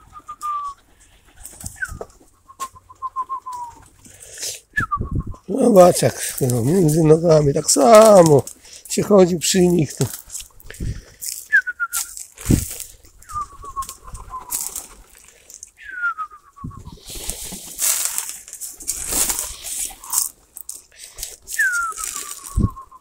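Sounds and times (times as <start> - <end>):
pigeons rustling: 0.0 - 23.0
wing flaps: 1.2 - 2.3, 12.4 - 15.3, 16.6 - 20.4.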